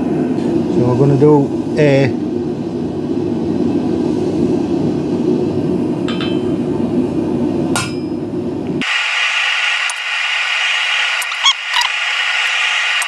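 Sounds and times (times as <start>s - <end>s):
loud steady noise: 0.0s - 13.0s
hammer striking steel stamp: 7.8s - 8.1s.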